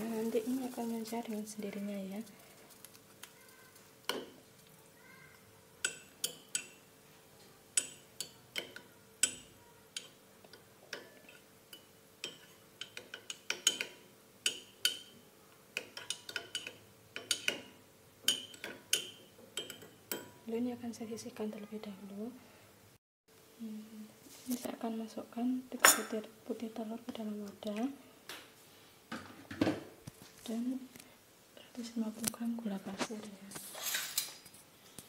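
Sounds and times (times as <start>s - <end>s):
metal spoon clinking in ceramic mug: 18.3s - 20.4s.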